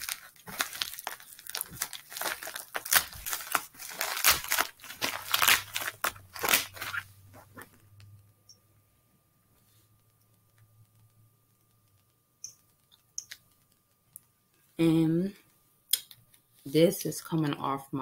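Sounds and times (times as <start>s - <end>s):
plastic mailer crinkling and tearing: 0.0s - 7.6s.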